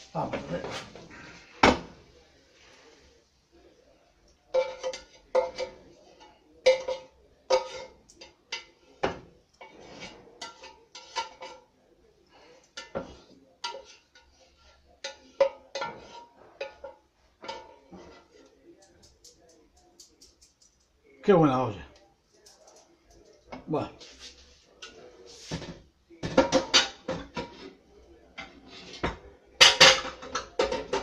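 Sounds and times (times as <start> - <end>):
spatula clanking against metal pan: 4.5 - 9.8, 10.4 - 11.7, 12.6 - 18.3.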